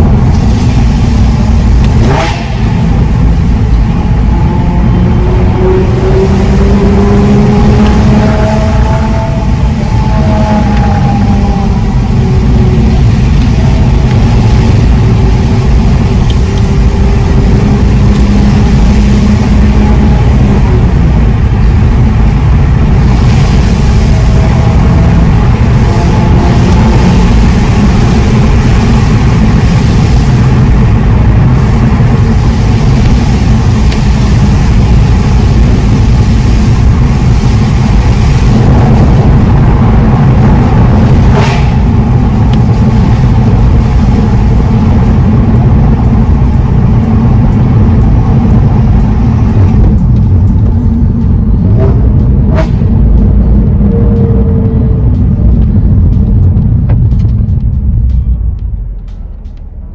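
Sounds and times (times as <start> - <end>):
tyre and road rumble: 0.0 - 59.9.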